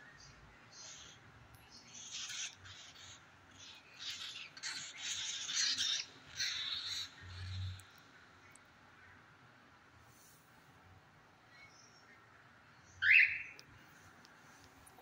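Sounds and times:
cockatiels squawking: 1.9 - 7.8.

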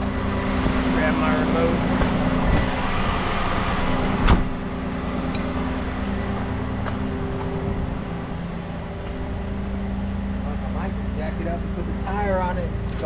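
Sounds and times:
diesel engine idling: 0.0 - 13.0
truck door shutting: 1.8 - 4.7.

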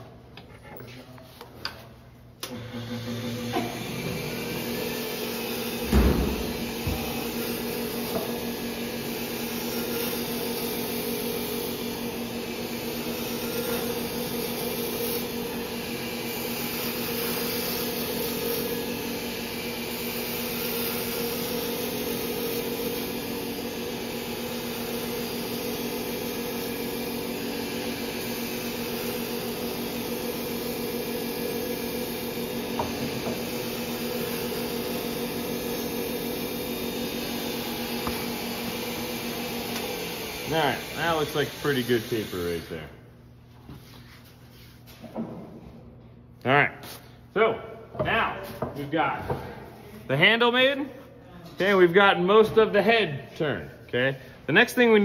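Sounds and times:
wood lathe motor hum: 2.4 - 43.0
turning tool cutting wood: 2.5 - 42.9.

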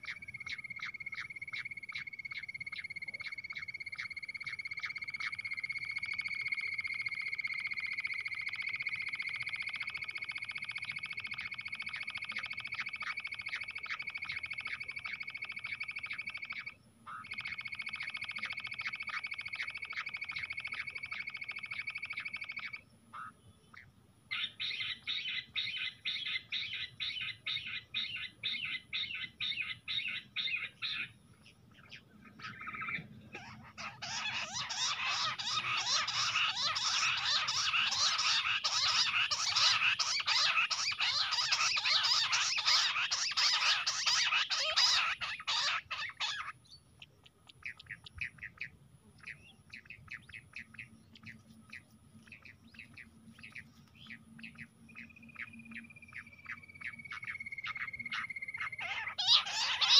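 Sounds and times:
quails calling: 0.0 - 59.9.

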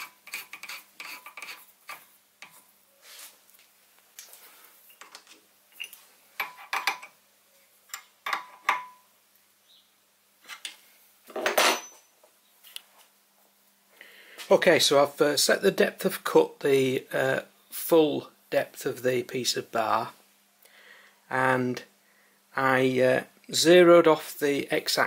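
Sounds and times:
metal clinks and scraping: 4.8 - 7.2, 11.4 - 12.1.

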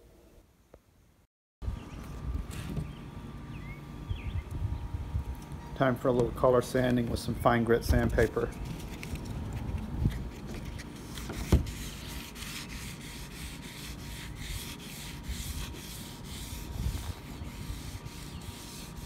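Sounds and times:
sandpaper rubbing back and forth: 8.1 - 19.0.

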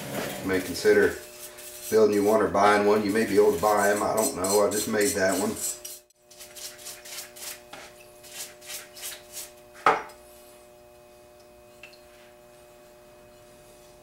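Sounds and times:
brush scrubbing: 0.0 - 9.6.

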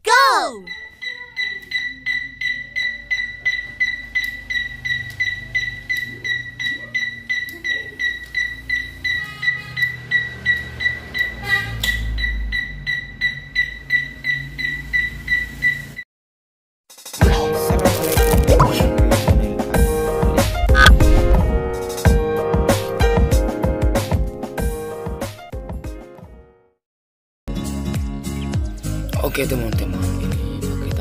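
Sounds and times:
high even beeps: 18.5 - 18.8, 20.6 - 21.0
low rumble: 20.3 - 21.8.

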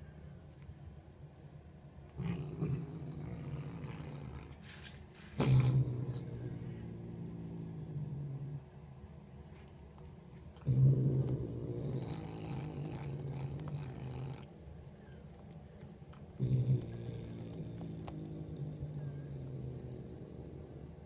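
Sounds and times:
cat growling low: 2.1 - 9.0, 9.9 - 21.0.

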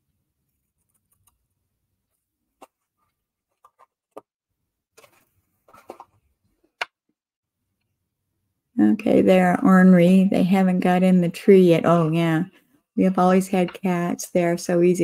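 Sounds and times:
paper handling: 5.0 - 6.2.

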